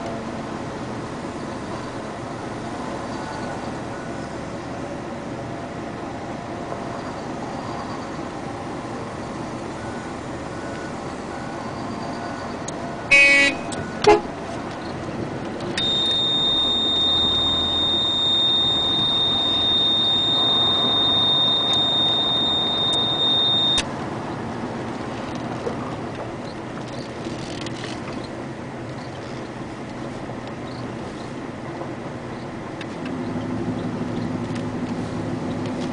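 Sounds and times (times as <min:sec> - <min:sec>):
vehicle road noise: 0:00.0 - 0:35.9
horn-like toot: 0:13.1 - 0:14.4, 0:15.8 - 0:23.8
high-pitched electronic beep: 0:15.8 - 0:23.9.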